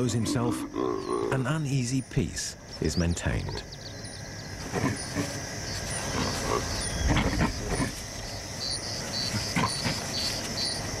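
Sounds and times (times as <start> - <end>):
baboons grunting: 0.0 - 1.5, 4.6 - 5.4, 6.0 - 8.0, 9.2 - 10.3
insects chirring: 0.0 - 11.0.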